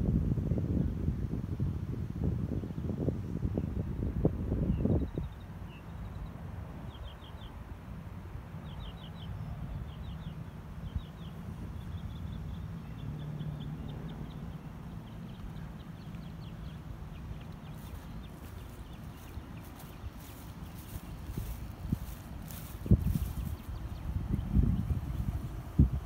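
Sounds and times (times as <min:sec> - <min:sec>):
bird chirping: 0:08.6 - 0:25.5.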